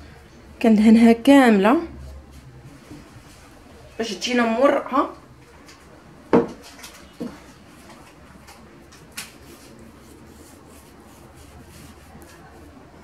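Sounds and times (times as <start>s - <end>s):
hand rubbing butter on dough: 9.4s - 13.0s.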